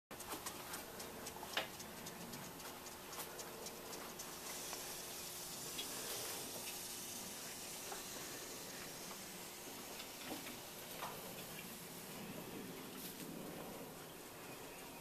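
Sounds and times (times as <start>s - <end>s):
soft ticks: 0.2s - 6.0s
steady hiss: 0.2s - 15.0s.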